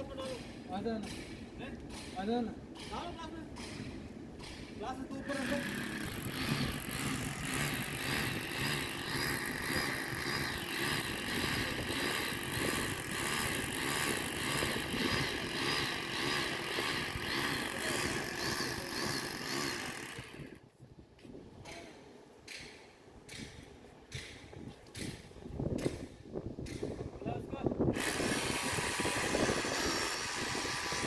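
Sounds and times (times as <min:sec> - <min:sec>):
electric drill boring into concrete: 0:05.2 - 0:20.6, 0:27.9 - 0:31.0.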